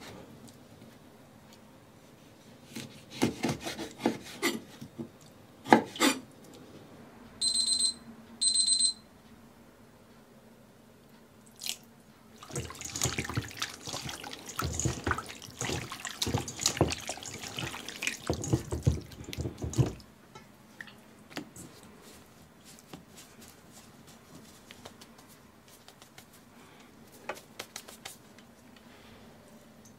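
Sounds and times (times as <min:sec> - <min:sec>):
wet squelching and sloshing: 0:12.4 - 0:20.1.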